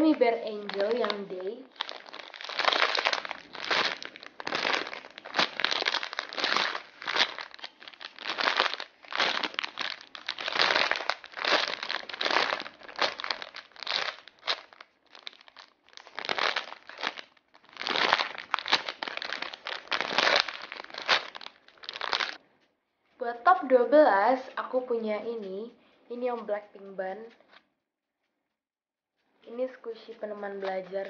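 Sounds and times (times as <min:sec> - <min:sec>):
plastic bag crinkling: 0:00.0 - 0:22.4.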